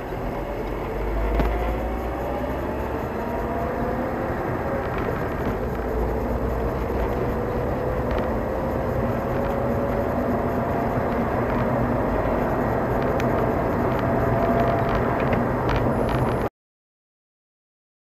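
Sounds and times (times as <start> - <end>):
faint rising whine: 0.0 - 16.0
road and engine noise: 0.0 - 16.5.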